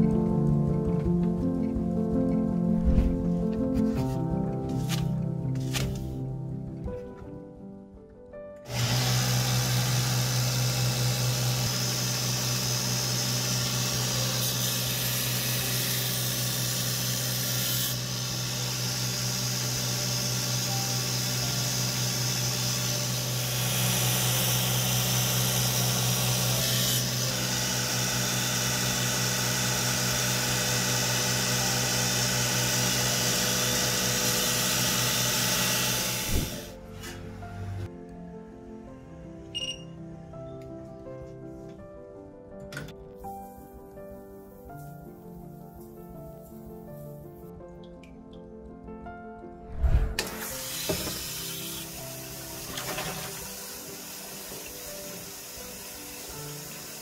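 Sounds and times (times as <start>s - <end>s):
belt grinder motor humming: 8.7s - 36.8s.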